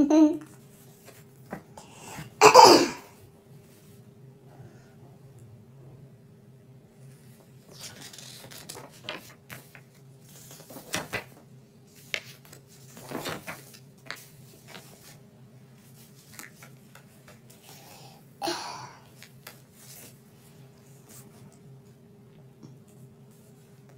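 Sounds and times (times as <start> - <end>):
faint steady hum: 0.0 - 23.9
paper pages rustling: 7.1 - 17.6, 19.1 - 21.6.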